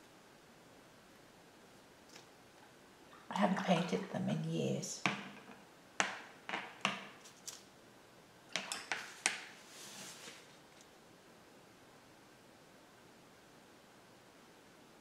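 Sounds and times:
tools tapping and scraping: 0:05.0 - 0:07.3, 0:08.5 - 0:09.5.

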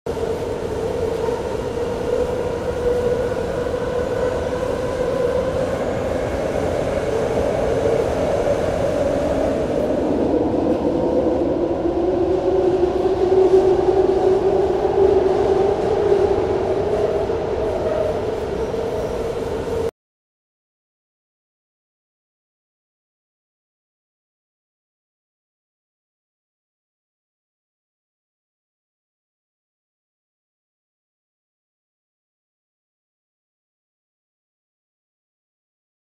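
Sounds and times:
train car rumble with whine: 0:00.1 - 0:19.9.

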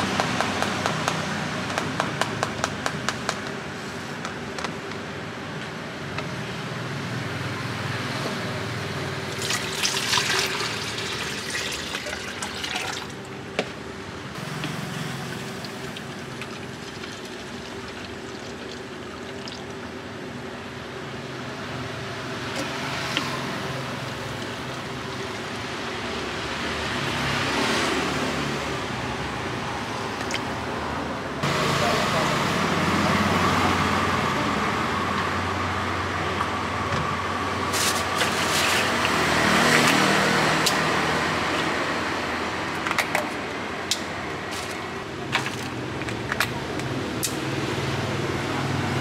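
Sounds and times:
juice pouring into plastic bottles: 0:09.3 - 0:13.2, 0:15.2 - 0:19.8.

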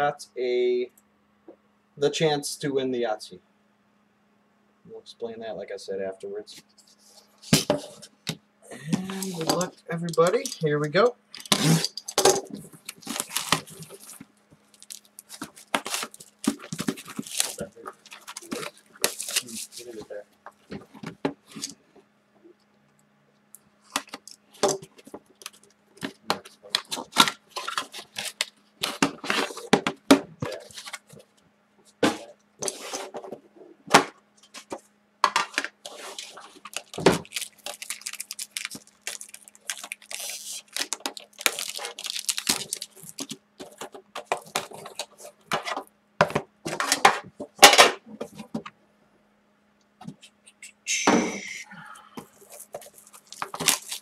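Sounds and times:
cardboard and wrapper rustling: 0:11.4 - 0:21.8, 0:23.8 - 0:31.3, 0:35.5 - 0:45.9, 0:52.2 - 0:54.0.

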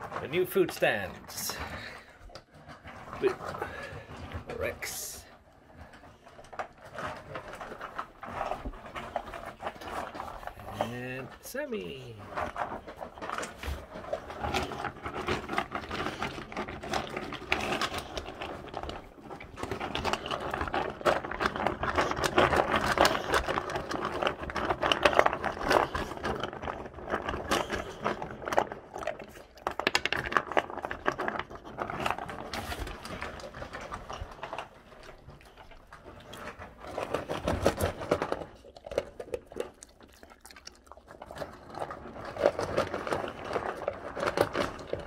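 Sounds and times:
dog crunching kibble: 0:00.0 - 0:45.0
kibble clattering in metal bowl: 0:00.0 - 0:45.0.

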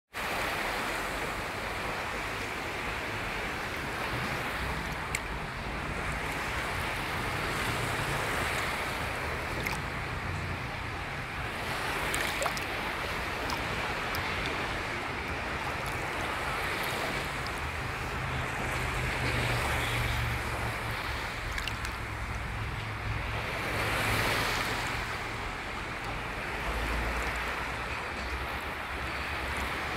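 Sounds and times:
small waves lapping: 0:00.2 - 0:29.9.

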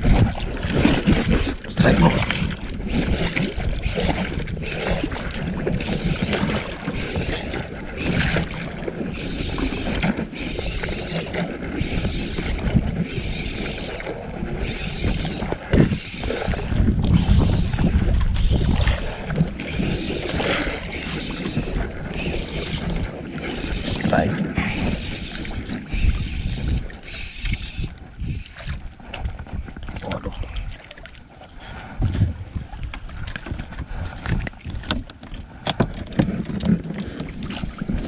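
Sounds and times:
water lapping against boat hull: 0:00.0 - 0:38.0
wind on microphone: 0:00.0 - 0:38.0.

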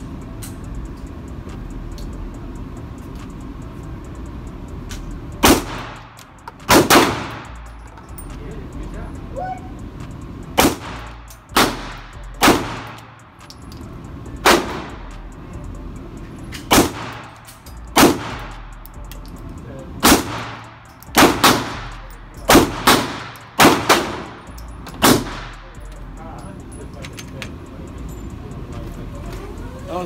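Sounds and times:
pistol shots with ringing echo: 0:05.4 - 0:07.6, 0:10.6 - 0:13.2, 0:14.4 - 0:15.0, 0:16.6 - 0:18.6, 0:20.0 - 0:25.6.

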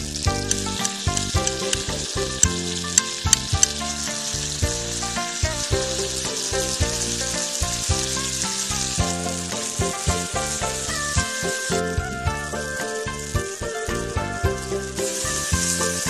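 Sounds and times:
clams sizzling on hot stone: 0:00.0 - 0:16.0
melodic background music: 0:00.0 - 0:16.0
sharp pops: 0:00.2 - 0:12.1.

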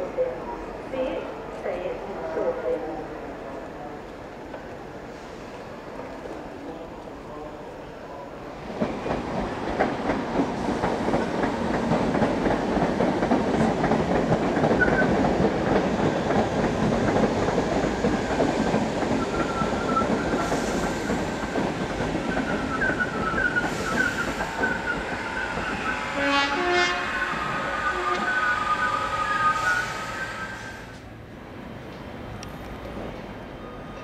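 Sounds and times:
train wheels rumbling on rail: 0:08.4 - 0:34.0
high wheel squeals: 0:27.1 - 0:31.0.

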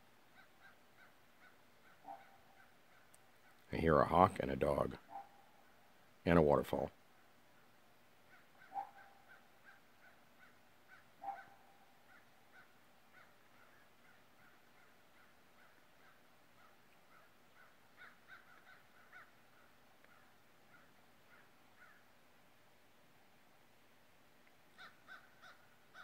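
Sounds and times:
hawk calling: 0:00.3 - 0:05.5, 0:08.3 - 0:22.1, 0:24.8 - 0:26.0
distant dog calling: 0:00.3 - 0:05.6, 0:08.3 - 0:22.1, 0:24.8 - 0:26.0.

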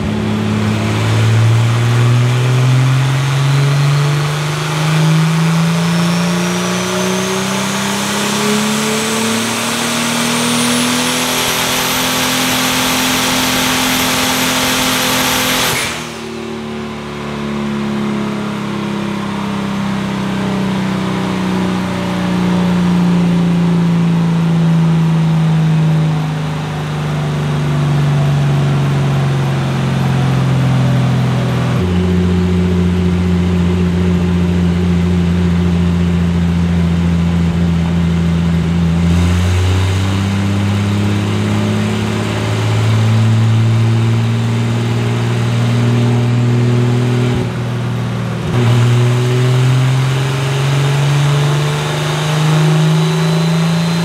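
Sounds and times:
turbocharged race car engine running: 0:00.0 - 0:54.0.

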